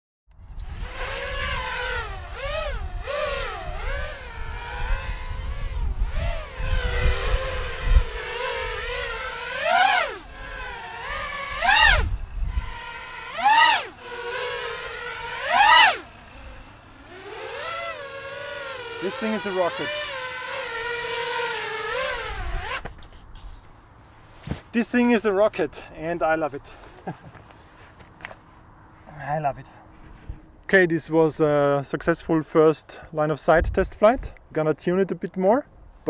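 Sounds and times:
quadcopter motors whining: 0.4s - 23.2s.

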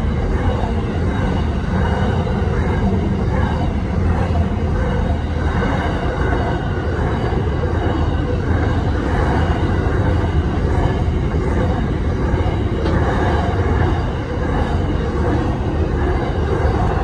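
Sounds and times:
freight train wheels rumbling: 0.0s - 17.0s.

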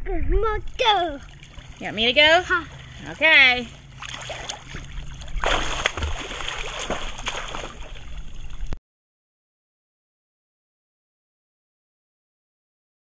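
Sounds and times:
pool water splashing: 0.7s - 8.8s.

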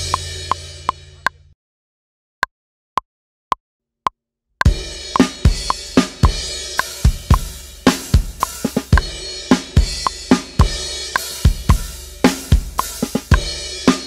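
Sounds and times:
drum kit rock groove: 0.0s - 1.2s, 4.6s - 14.0s.

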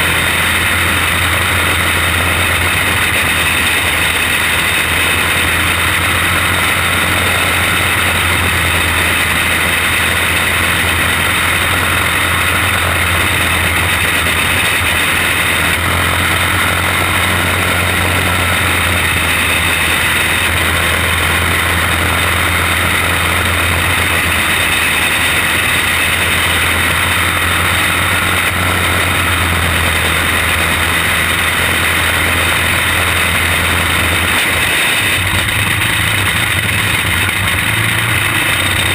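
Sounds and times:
kart engine droning: 0.0s - 38.9s.

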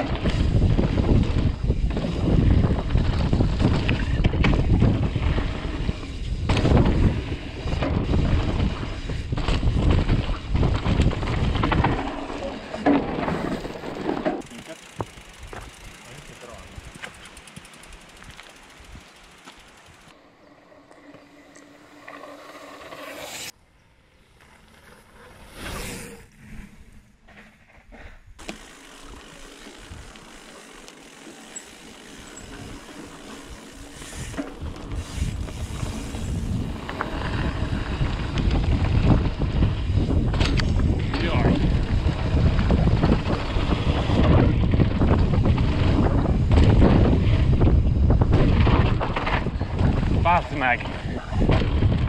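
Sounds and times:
rushing noise with low hum: 0.0s - 12.1s, 31.7s - 52.0s
wind buffeting microphone: 0.0s - 12.1s, 33.6s - 52.0s
bike tyres scrubbing through dirt: 0.0s - 20.2s, 21.2s - 23.6s, 24.3s - 50.2s.

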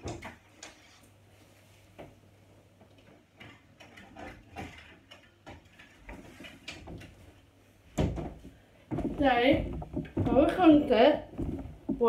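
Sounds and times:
light clicks and knocks: 8.0s - 12.0s.

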